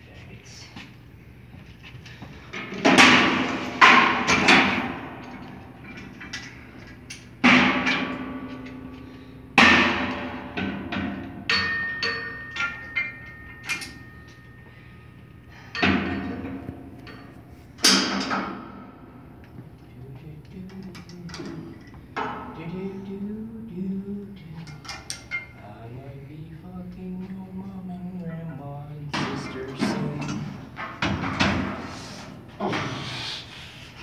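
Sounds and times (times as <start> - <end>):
weight plates clanking: 2.1 - 19.3.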